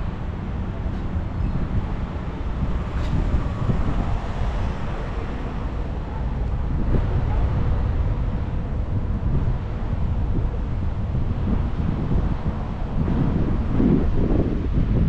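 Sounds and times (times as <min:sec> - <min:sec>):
road and engine rumble: 0:00.0 - 0:15.0
wind noise: 0:00.0 - 0:15.0.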